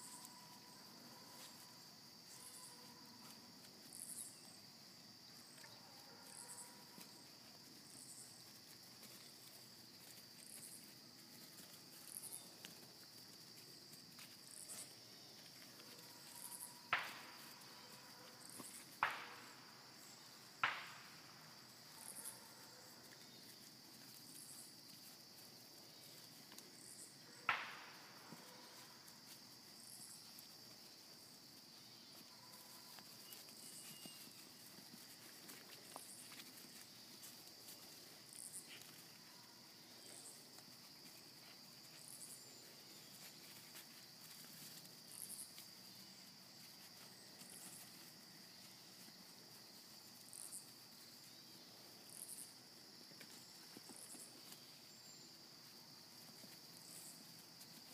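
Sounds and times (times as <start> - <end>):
insects trilling: 0.0 - 57.9
bright insect chirp: 26.8 - 35.1, 53.3 - 55.8.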